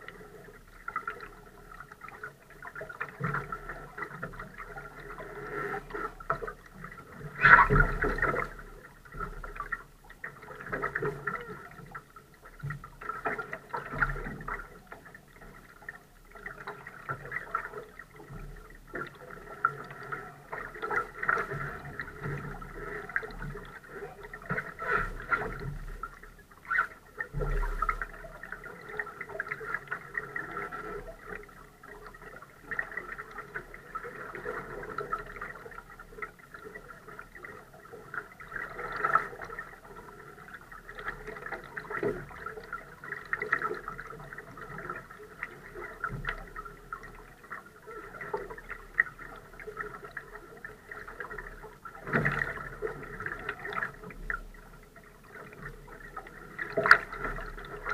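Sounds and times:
water lapping against hull: 0.0 - 57.9.

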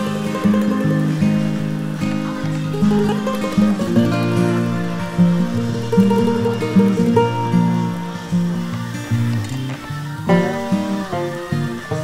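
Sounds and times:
instrumental background music: 0.0 - 12.0.

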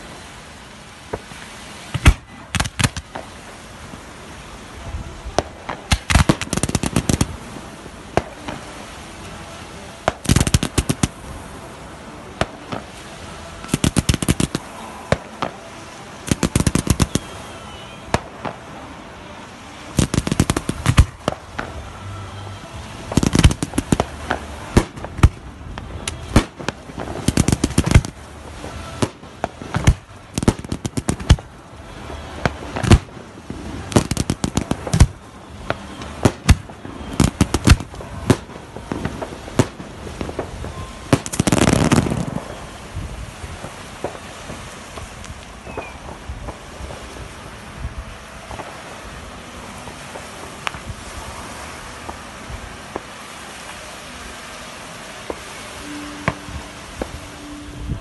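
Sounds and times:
fireworks shells bursting: 5.4 - 8.8, 10.0 - 11.3, 12.4 - 15.6, 16.3 - 18.7, 19.9 - 42.9.

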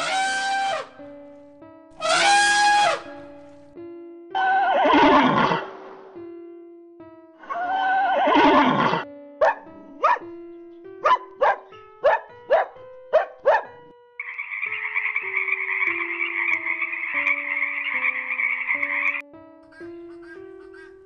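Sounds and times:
horse whinny: 4.4 - 5.7, 7.4 - 9.1
dog barking: 7.4 - 10.3, 11.0 - 13.9
frog croaking: 14.2 - 19.2.

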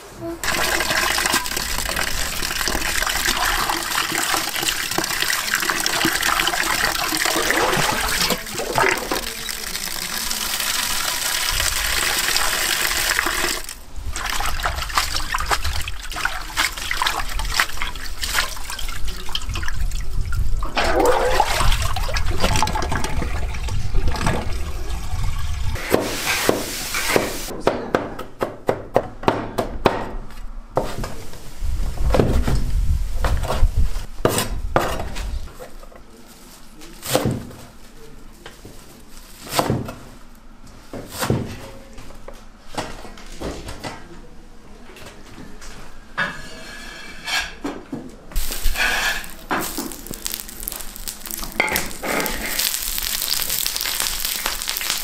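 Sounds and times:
tap water running into basin: 0.4 - 20.1, 48.4 - 55.0.

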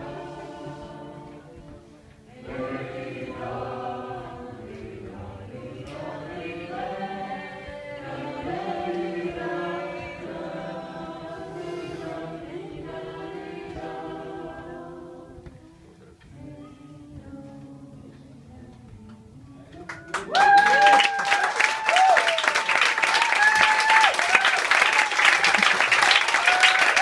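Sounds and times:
voices singing long held notes: 0.0 - 21.0.

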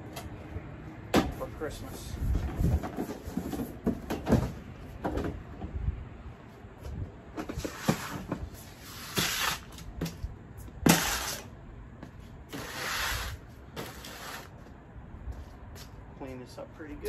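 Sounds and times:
boxes scraping: 2.5 - 4.5, 7.5 - 9.9, 10.9 - 11.5, 12.5 - 14.7.

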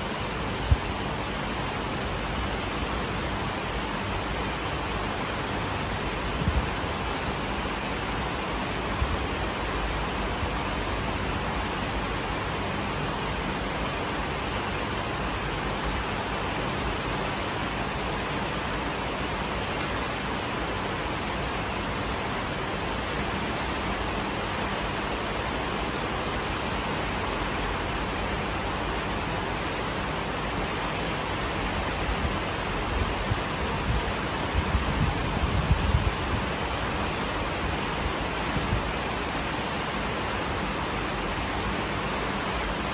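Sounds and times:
heavy rain: 0.0 - 42.9.

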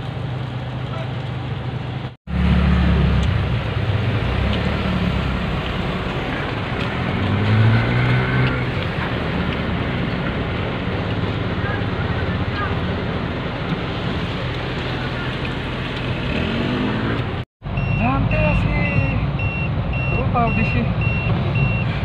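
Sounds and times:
steady rain: 0.0 - 17.4
car engine driving: 0.0 - 22.0.

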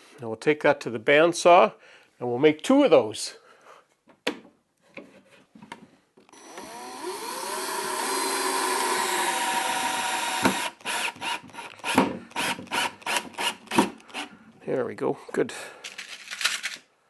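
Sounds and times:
cordless drill motor whine: 6.3 - 11.4.

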